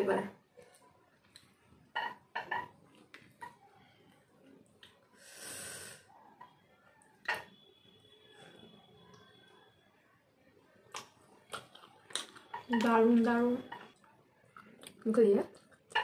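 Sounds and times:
person chewing: 0.6s - 1.7s, 10.8s - 13.0s, 14.0s - 16.0s
breathy hiss: 5.2s - 6.1s.

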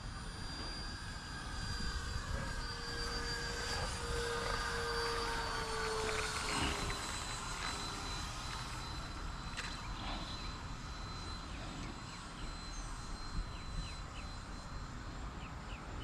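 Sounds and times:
high whine of model jet fan: 0.0s - 16.0s.

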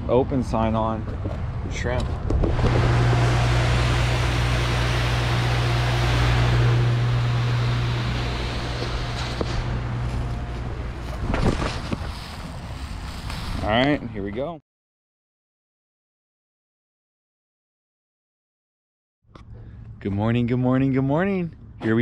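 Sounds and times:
machine hum with rushing noise: 1.3s - 13.3s.

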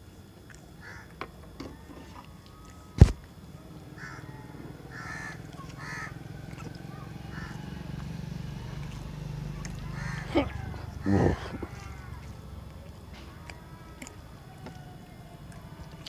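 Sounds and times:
crows cawing: 0.8s - 1.2s, 3.9s - 8.0s, 9.5s - 12.6s.

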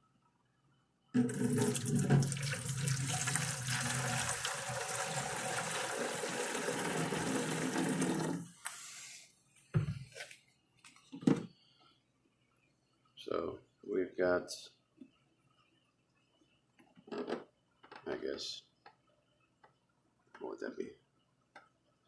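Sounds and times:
liquid pouring into plastic bottle: 1.2s - 8.5s.

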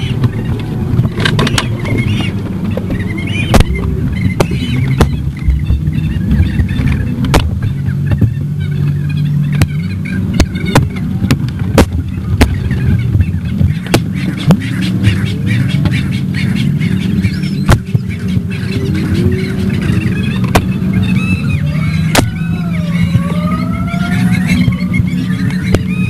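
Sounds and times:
sharp clicks and knocks: 0.0s - 8.5s, 10.4s - 14.8s, 17.6s - 18.6s, 20.4s - 21.5s
low mechanical hum: 0.0s - 26.0s.

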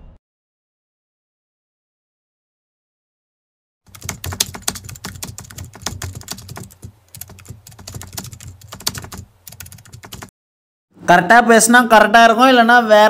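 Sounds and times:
keyboard typing clicks: 3.9s - 10.3s.

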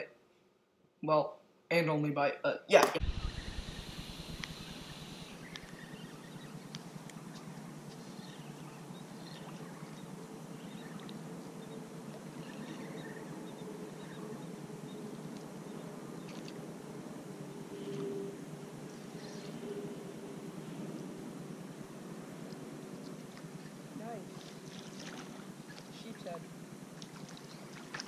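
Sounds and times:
faint steady hum: 2.7s - 28.0s
wind hiss: 2.8s - 7.2s
faint bird chirps: 3.1s - 16.6s, 17.6s - 20.0s
lapping water: 22.5s - 28.0s.

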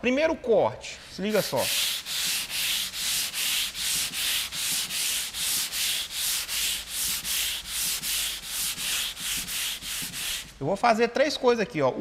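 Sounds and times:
sandpaper rasping back and forth: 1.1s - 10.6s.

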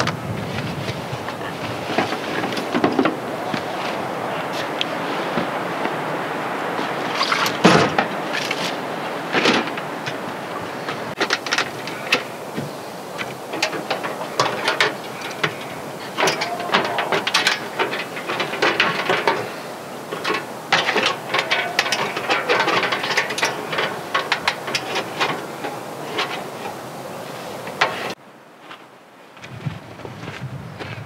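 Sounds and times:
metal stove clicks and rattles: 13.2s - 26.8s.

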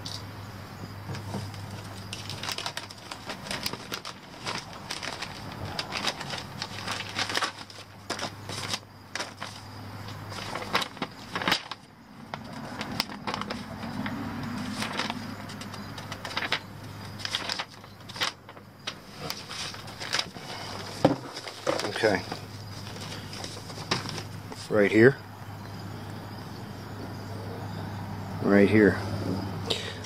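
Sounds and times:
steady low hum: 0.0s - 30.0s
plastic bag crinkling: 1.5s - 24.8s.

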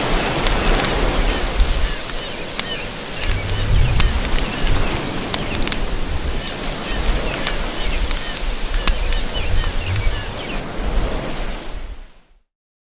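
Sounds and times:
steady rushing wash: 0.0s - 11.8s
wind rumbling on microphone: 0.0s - 12.3s
small birds chirping: 1.7s - 10.7s.

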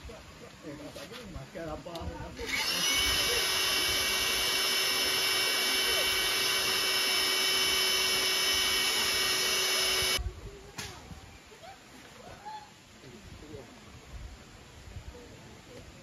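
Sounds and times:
electric air pump whining: 2.4s - 10.2s.

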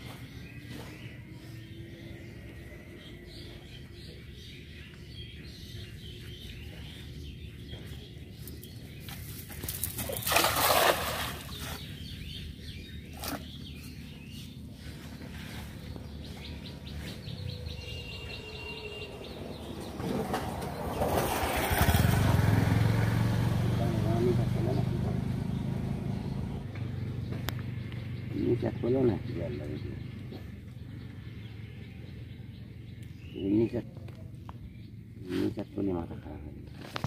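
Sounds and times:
water and rope noise: 8.6s - 11.9s
net splashing onto water: 9.6s - 11.8s.

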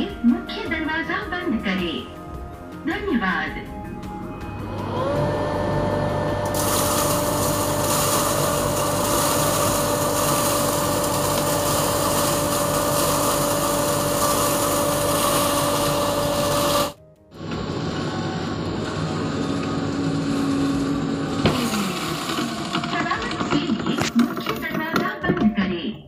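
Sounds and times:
flour mill motor whine: 4.2s - 25.0s.

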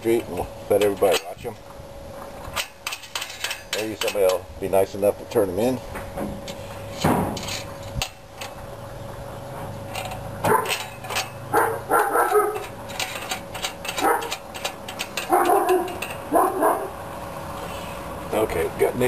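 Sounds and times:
metal chain clicks: 9.9s - 11.4s, 12.3s - 16.2s
dogs barking: 10.4s - 10.8s, 11.5s - 12.7s, 14.0s - 14.4s, 15.2s - 17.0s.

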